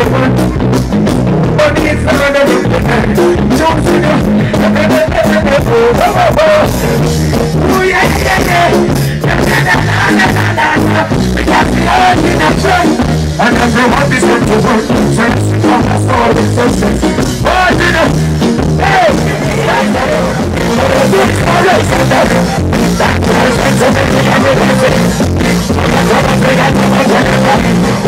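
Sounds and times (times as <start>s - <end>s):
person singing into microphone: 0.0s - 0.6s, 1.4s - 28.0s
heavy bass line: 0.0s - 28.0s
reggae music through loudspeakers: 0.0s - 28.0s.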